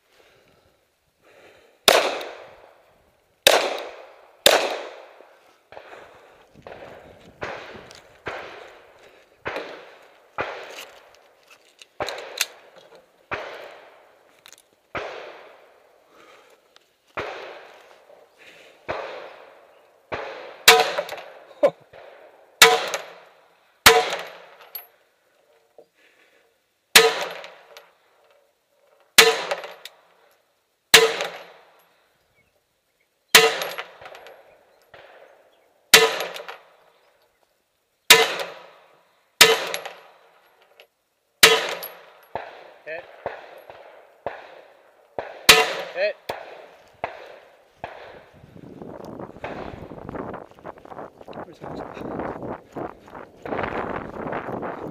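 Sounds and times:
pistol shots: 0:01.8 - 0:02.7, 0:03.4 - 0:06.0, 0:06.6 - 0:11.1, 0:12.0 - 0:14.1, 0:14.9 - 0:15.8, 0:17.2 - 0:17.8, 0:18.8 - 0:24.6, 0:26.9 - 0:27.9, 0:29.2 - 0:30.0, 0:30.9 - 0:31.7, 0:33.3 - 0:36.7, 0:38.1 - 0:38.8, 0:39.4 - 0:40.3, 0:41.4 - 0:48.4, 0:49.3 - 0:50.0.

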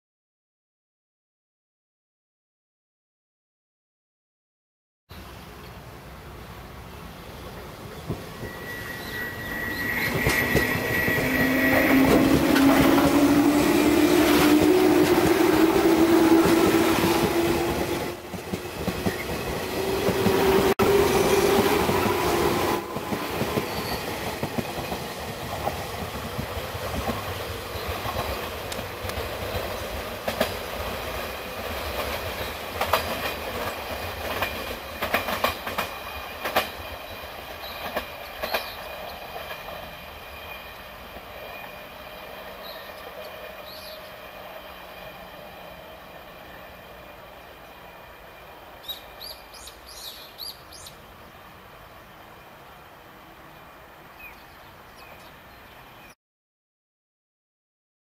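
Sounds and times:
steady high tone: 0:08.4 - 0:16.8.

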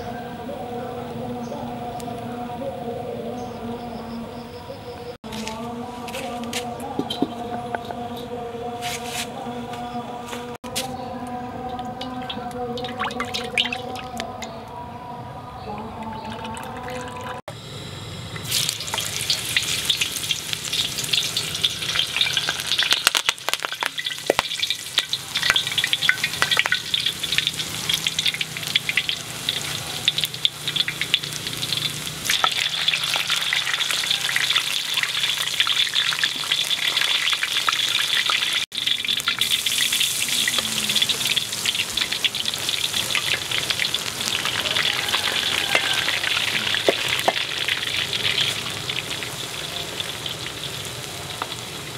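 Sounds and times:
food sizzling in hot oil: 0:17.6 - 0:51.9.

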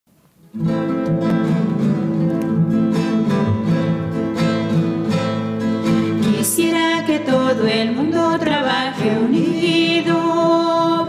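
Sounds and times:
acoustic guitar strumming: 0:00.3 - 0:11.0.

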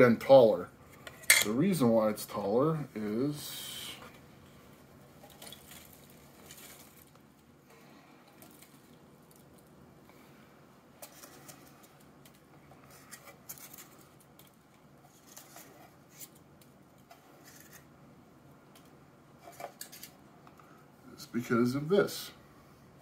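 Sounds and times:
packing peanuts rustling: 0:05.2 - 0:07.5.

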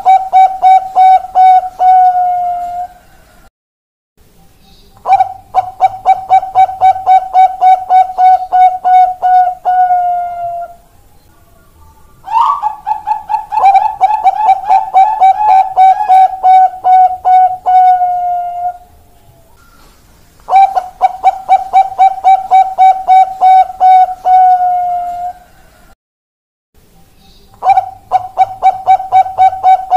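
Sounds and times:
dove cooing: 0:00.0 - 0:03.0, 0:05.0 - 0:10.8, 0:12.2 - 0:19.0, 0:20.5 - 0:25.7, 0:27.6 - 0:29.9.

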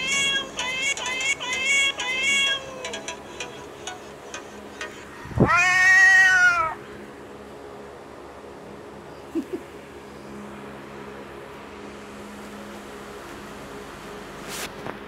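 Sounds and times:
cat meowing: 0:05.3 - 0:06.8
long rising cat meow: 0:05.4 - 0:06.8.

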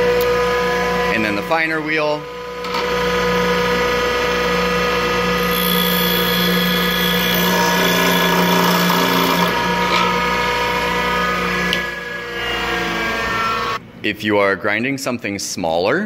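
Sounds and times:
bench grinder motor humming: 0:04.2 - 0:13.8.

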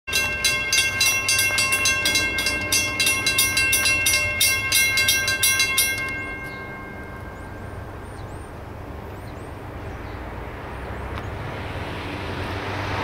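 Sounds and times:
steady ringing tone: 0:00.1 - 0:08.9
crossing warning bell ringing rapidly: 0:00.1 - 0:09.2.

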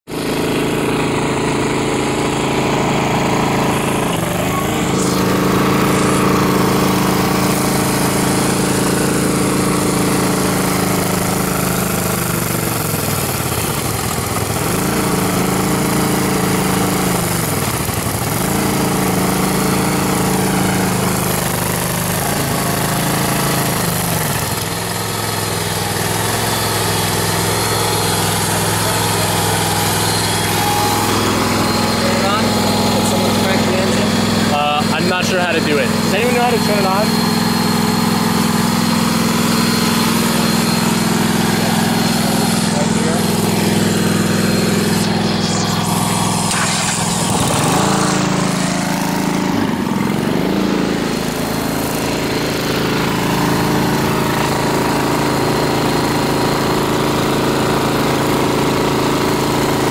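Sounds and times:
tractor engine running: 0:00.1 - 0:59.9.

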